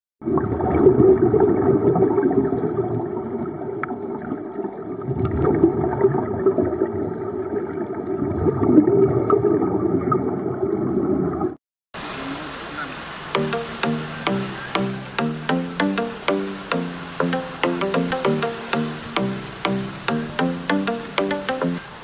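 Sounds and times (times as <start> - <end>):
underwater bubbling: 0.2 - 11.6.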